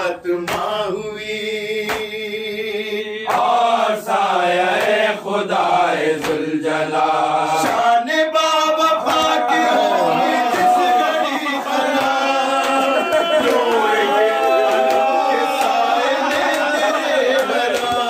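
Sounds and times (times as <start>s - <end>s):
men chanting a lament: 0.0s - 18.0s
hands slapping chest: 0.5s - 0.8s, 1.8s - 2.2s, 3.3s - 3.6s, 4.7s - 5.1s, 6.2s - 6.5s, 7.6s - 8.0s, 11.8s - 14.0s, 14.7s - 18.0s.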